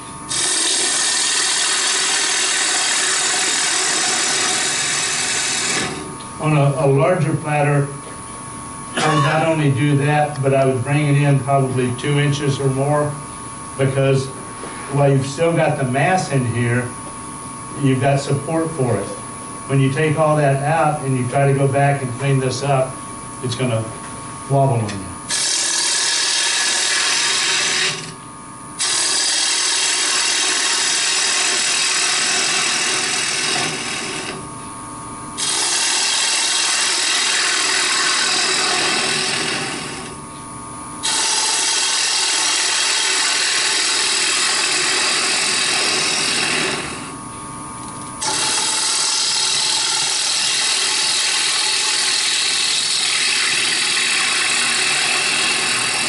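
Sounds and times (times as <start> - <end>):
wood shaving hiss on lathe: 0.0 - 6.1, 25.3 - 28.2, 28.8 - 34.4, 35.4 - 40.2, 41.0 - 47.2, 48.2 - 56.0
lathe humming: 0.0 - 21.0, 21.9 - 56.0.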